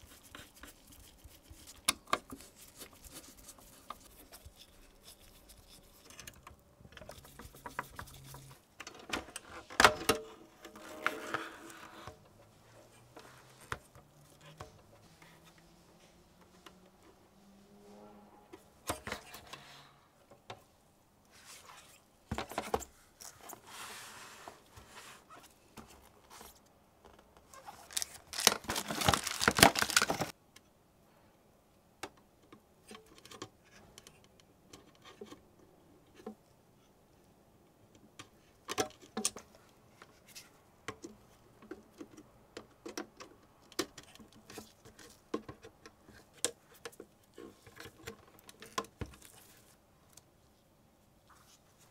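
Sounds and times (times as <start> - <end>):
packaging rustling: 27.6 - 30.3.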